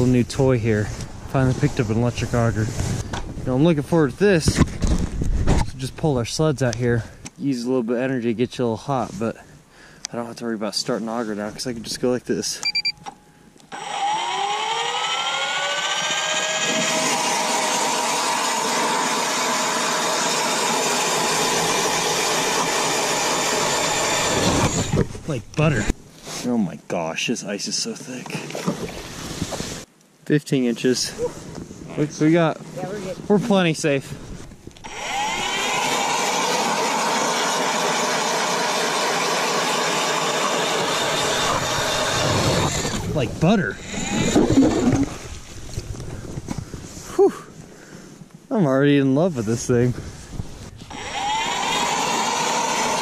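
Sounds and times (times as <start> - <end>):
electric ice auger whining: 13.7 - 25.0, 34.8 - 43.1, 43.8 - 45.1, 50.9 - 53.0.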